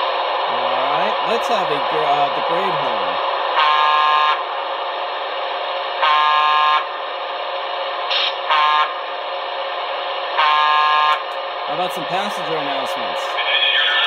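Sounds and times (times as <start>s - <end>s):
locomotive running sound: 0.0s - 14.0s
model locomotive horn blasts: 6.0s - 6.8s, 8.5s - 8.9s, 10.4s - 11.2s.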